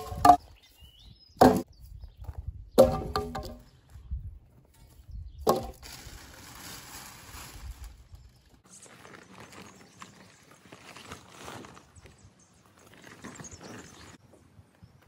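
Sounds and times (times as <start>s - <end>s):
wooden boards knocking: 0.0s - 0.4s, 1.4s - 1.6s, 2.8s - 3.6s, 5.4s - 5.8s
sharp wooden knock: 1.4s - 1.7s, 2.8s - 3.6s, 5.4s - 5.8s
plastic sheet rustling: 5.5s - 11.8s
footsteps on gravel: 8.6s - 14.2s.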